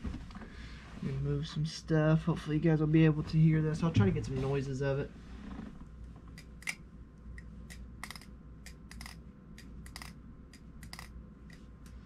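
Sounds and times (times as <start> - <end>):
balisong metallic clicks: 6.3 - 12.0.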